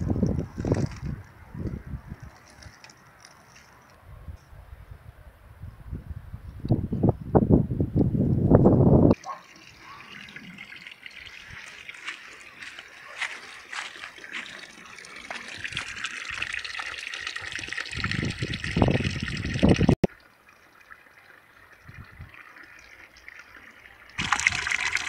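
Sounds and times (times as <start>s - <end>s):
water splashing into pool: 9.1s - 25.0s.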